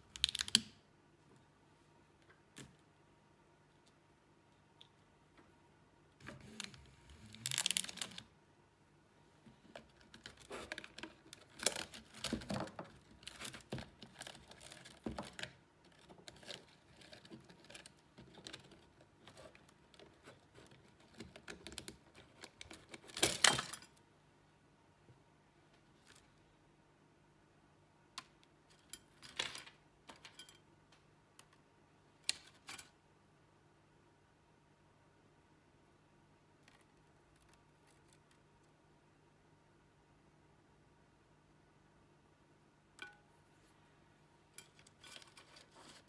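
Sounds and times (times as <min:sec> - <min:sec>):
wire scraping and rattling on plastic: 0:06.2 - 0:08.3, 0:09.4 - 0:24.0, 0:44.5 - 0:46.0.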